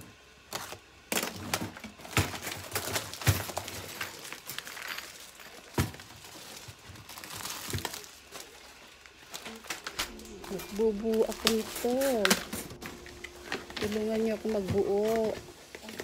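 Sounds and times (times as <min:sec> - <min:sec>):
plastic film crinkling: 0:02.3 - 0:12.5, 0:13.7 - 0:16.0.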